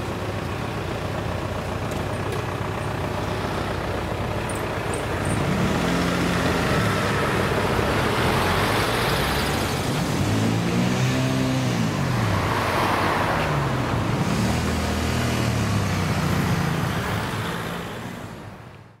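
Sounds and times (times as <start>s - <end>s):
cars driving past: 1.4s - 18.7s.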